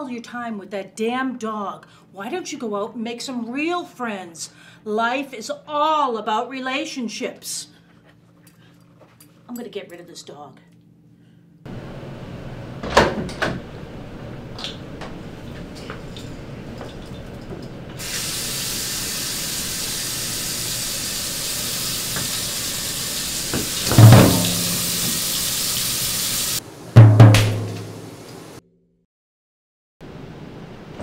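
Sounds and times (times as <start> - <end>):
running water hiss: 18.0 - 26.7, 27.5 - 28.6
sharp knocks: 23.6 - 25.1, 27.0 - 27.9
loud heavy thud: 23.9 - 24.9.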